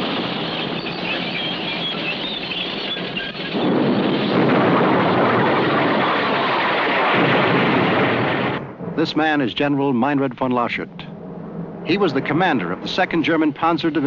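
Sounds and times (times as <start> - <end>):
faint high squeals: 0.4 - 3.6
rumbling battle din: 3.6 - 13.4.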